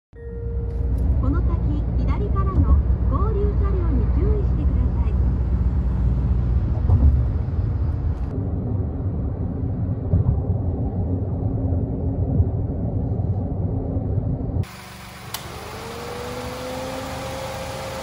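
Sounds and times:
car road and engine rumble: 0.2s - 18.0s
high hiss: 14.6s - 18.0s.

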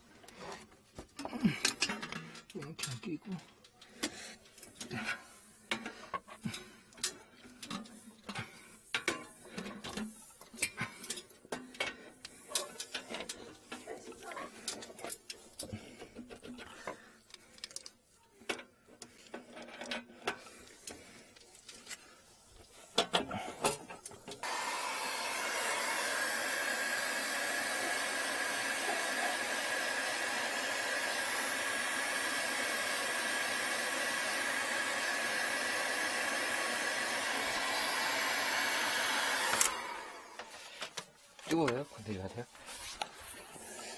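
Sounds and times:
heat gun fan blowing with whine: 22.9s - 42.2s.

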